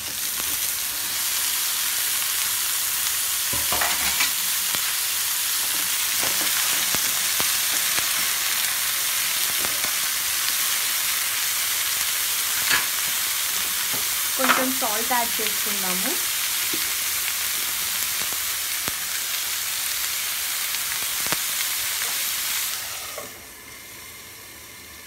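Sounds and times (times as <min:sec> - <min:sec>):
vegetables sizzling in oil: 0:00.0 - 0:25.0.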